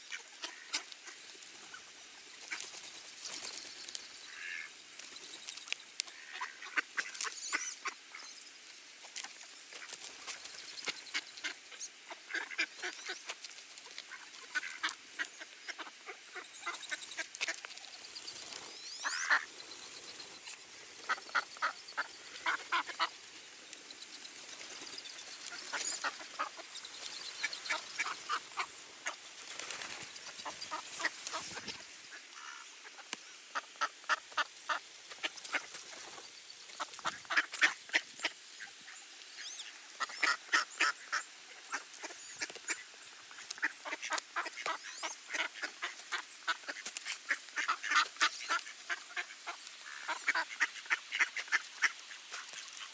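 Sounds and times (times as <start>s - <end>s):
ducks quacking: 0.0s - 4.7s, 6.0s - 8.3s, 9.7s - 52.9s.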